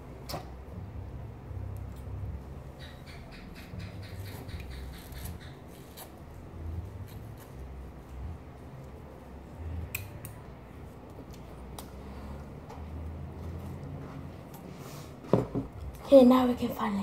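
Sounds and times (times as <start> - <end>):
utensil scraping mango flesh: 3.0 - 8.3.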